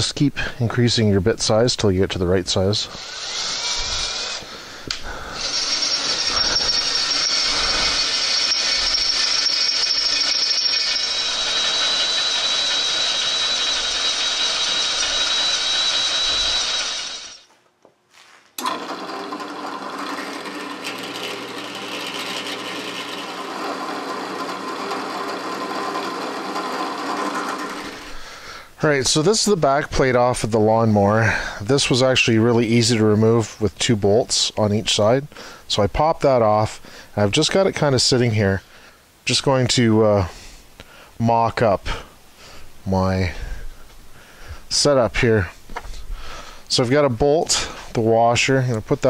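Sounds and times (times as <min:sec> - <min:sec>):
cordless drill boring through steel: 0:02.9 - 0:17.5, 0:18.6 - 0:28.2
drill press motor running: 0:03.0 - 0:17.4, 0:18.6 - 0:28.2.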